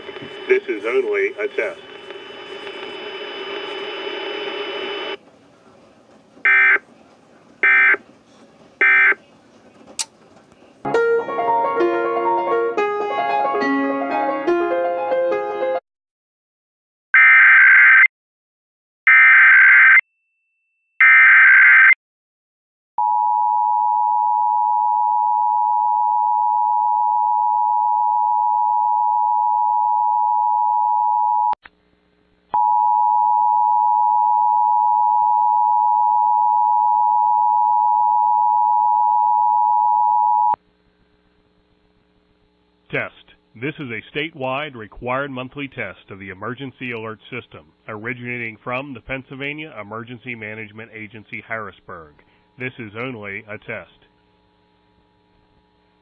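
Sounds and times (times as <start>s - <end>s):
digital header bursts: 8.8s - 9.2s.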